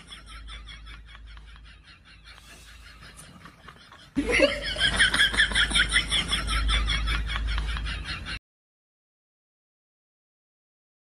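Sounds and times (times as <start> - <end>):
person laughing: 1.4 - 8.4.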